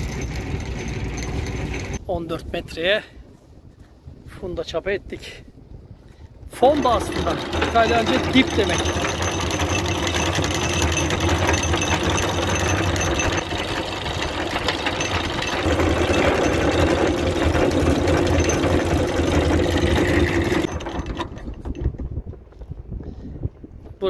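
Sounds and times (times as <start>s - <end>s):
boat engine running: 0.0s - 2.0s, 6.6s - 22.0s.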